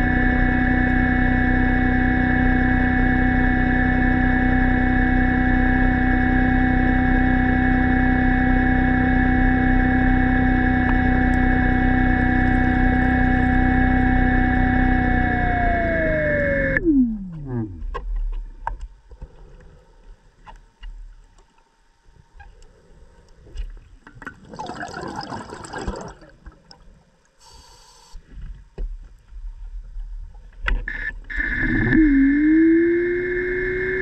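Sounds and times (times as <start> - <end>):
underwater scooter motor whine: 0.0 - 19.0, 27.4 - 28.2, 30.7 - 34.0
bubbling rush: 24.2 - 26.7
brief hiss: 27.4 - 28.2.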